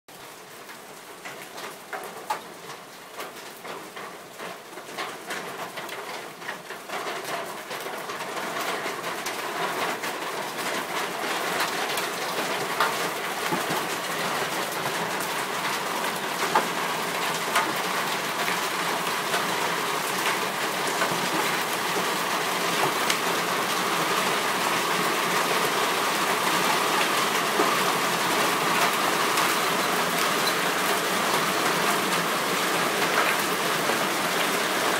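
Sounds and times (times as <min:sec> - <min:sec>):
hailstones striking surfaces: 0:11.6 - 0:34.9.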